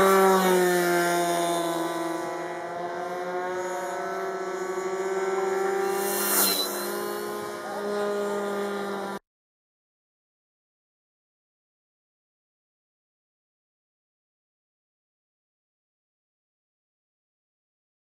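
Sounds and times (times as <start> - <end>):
model aeroplane engine buzzing: 0.0 - 9.2.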